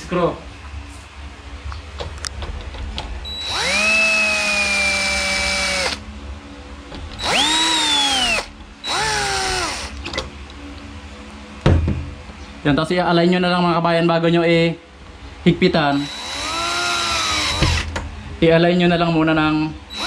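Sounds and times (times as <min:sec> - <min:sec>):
cordless drill driving screws: 0:03.3 - 0:06.0, 0:07.2 - 0:10.0, 0:16.0 - 0:17.9.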